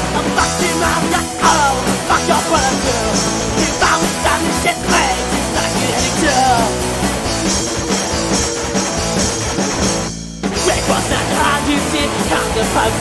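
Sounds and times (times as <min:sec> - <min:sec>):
drums beating: 0:00.0 - 0:13.0
punk rock band playing: 0:00.0 - 0:13.0
sustained guitar chords: 0:00.0 - 0:13.0.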